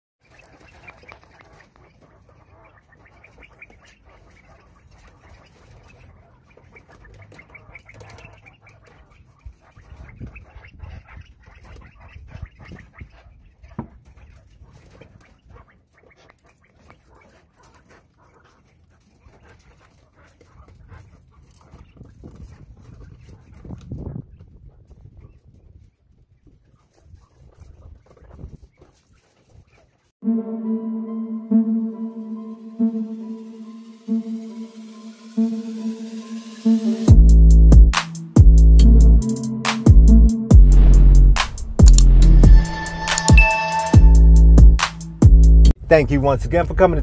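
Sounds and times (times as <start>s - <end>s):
quail chirping: 0.2s - 30.0s.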